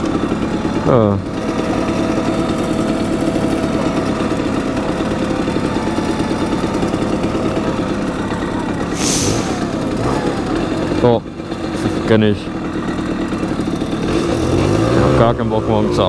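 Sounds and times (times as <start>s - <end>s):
moped engine running: 0.0s - 16.0s
short hiss: 8.9s - 10.0s.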